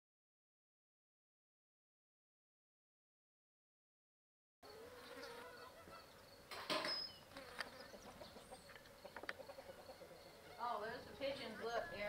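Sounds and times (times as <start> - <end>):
faint insect buzzing: 4.6 - 11.6.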